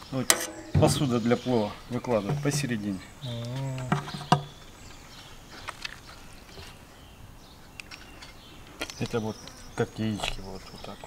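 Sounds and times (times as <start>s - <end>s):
man's drawn-out wavering voice: 3.2s - 4.0s.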